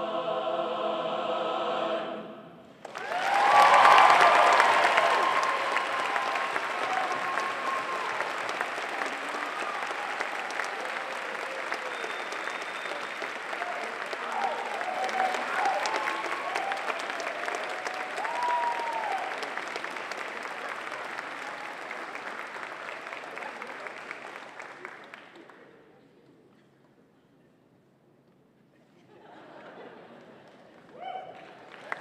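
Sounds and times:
crowd applauding: 2.8 - 25.8, 30.3 - 32.0
whoops and shouts: 3.0 - 8.4, 14.3 - 19.4, 30.9 - 31.5.

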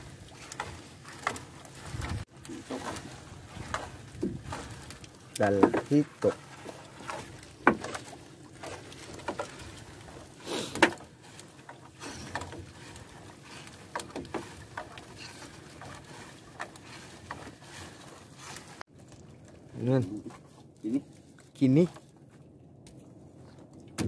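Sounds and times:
fishing net hauled by hand: 0.0 - 22.4
water pattering: 0.0 - 24.0
small knocks: 7.2 - 9.5.

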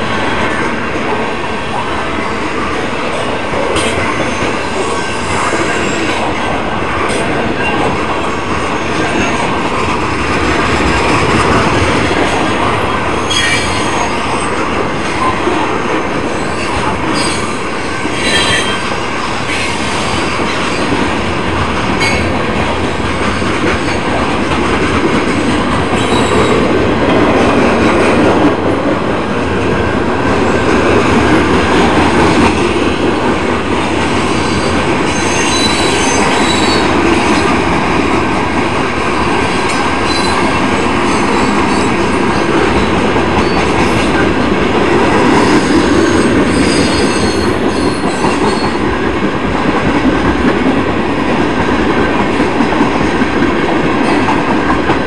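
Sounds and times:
train wheels rumbling on rail: 0.0 - 55.0
high-pitched wheel squeals: 13.2 - 14.2, 35.1 - 36.8.

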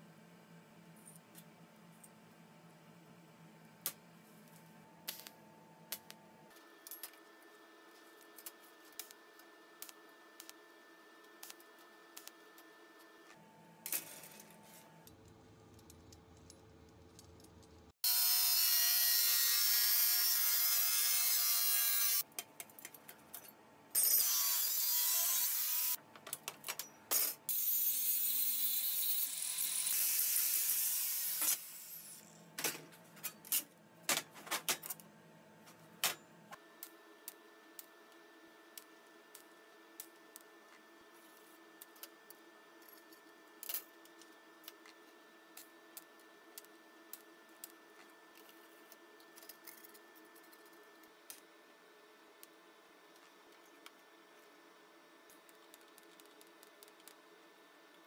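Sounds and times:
angle grinder cutting steel: 18.1 - 22.2, 24.0 - 26.0.

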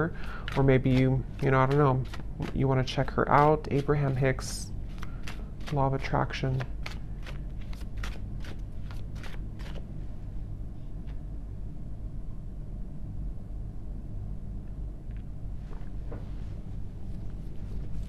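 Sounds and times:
low hum: 0.0 - 18.0.

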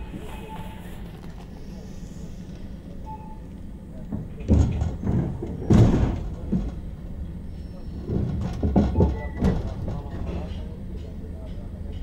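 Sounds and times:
railway cars banging: 2.6 - 12.0.

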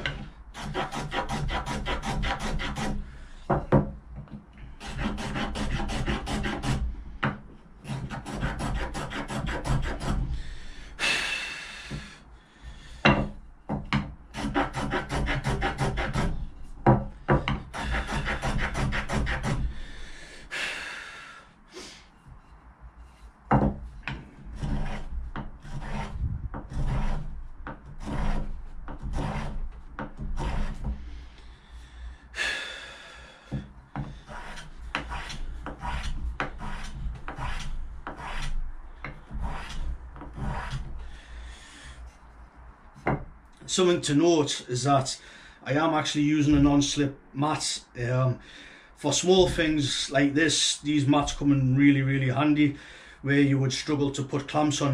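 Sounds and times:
hand tool scraping wood: 0.0 - 20.2, 21.8 - 31.3, 33.4 - 42.4, 49.3 - 50.3.

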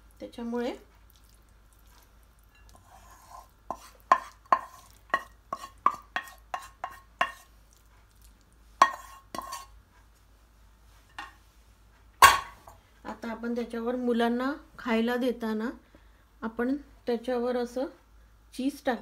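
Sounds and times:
wooden spatula scraping: 1.8 - 7.9, 8.8 - 9.8
spatula knocking on pan and plate: 3.7 - 7.4, 8.8 - 9.6, 12.2 - 12.8.

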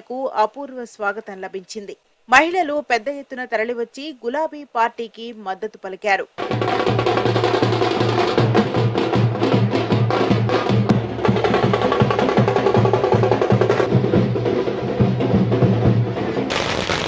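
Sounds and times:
frame drums beaten with sticks: 6.4 - 16.4.

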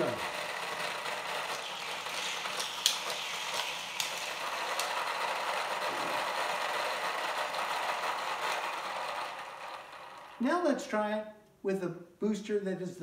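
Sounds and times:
motorized wheels whirring: 0.0 - 10.4
sharp clicks of toy cars launching: 0.0 - 10.4.

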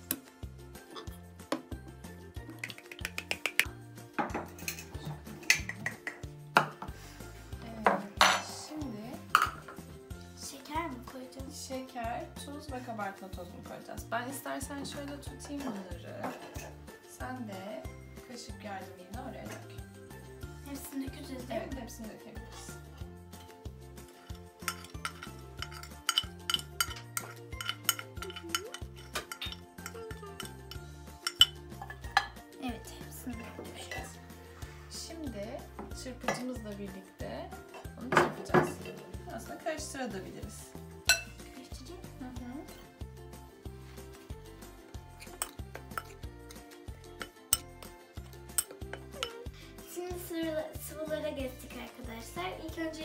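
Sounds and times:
background music with bass line: 0.0 - 15.9, 38.8 - 53.0
metal spoon clinking on ceramic dish: 2.6 - 5.8, 9.3 - 9.8, 24.2 - 32.4, 41.1 - 41.4, 45.2 - 49.5.

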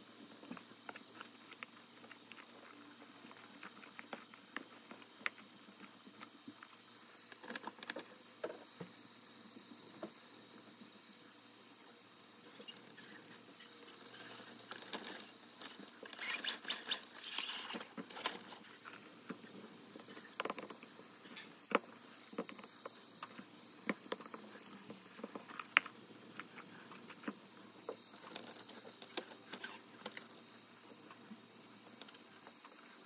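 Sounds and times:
scraping and rustling of parts: 14.1 - 19.1.

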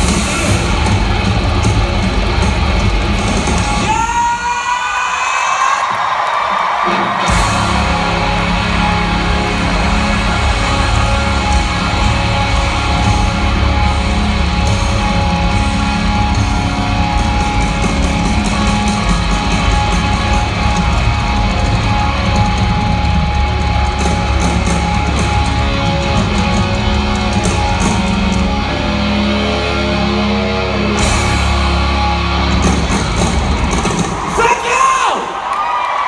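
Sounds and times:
bass: 0.0 - 4.2, 7.1 - 34.9
distorted electric guitars: 0.0 - 5.2, 6.5 - 34.7
drums: 0.0 - 36.0.

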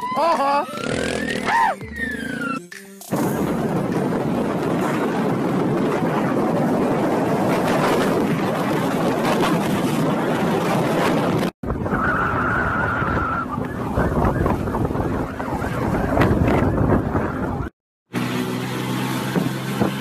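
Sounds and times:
wind rushing over microphone: 3.2 - 17.7
moped engine: 18.1 - 20.0.

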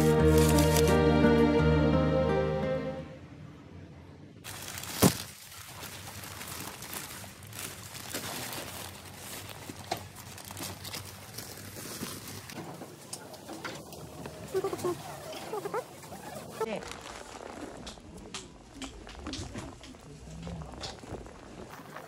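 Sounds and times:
newspaper rustling and crinkling: 0.0 - 0.9, 4.5 - 13.1, 13.9 - 18.1
sharp paper crackle: 0.0 - 0.9, 4.5 - 12.6, 14.4 - 22.0
background music: 0.0 - 3.4.

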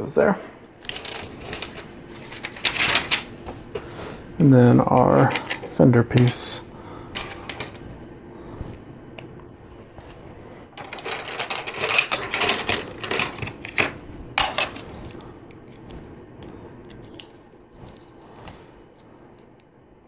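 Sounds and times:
plastic pieces clattering and clicking: 10.8 - 14.8.

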